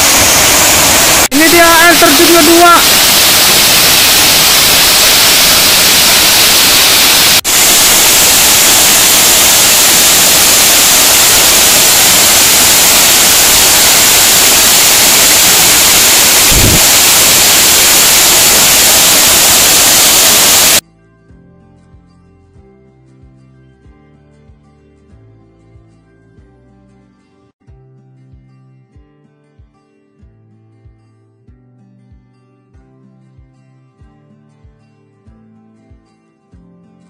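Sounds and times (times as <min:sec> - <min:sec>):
waterfall rushing: 0:00.0 - 0:20.8.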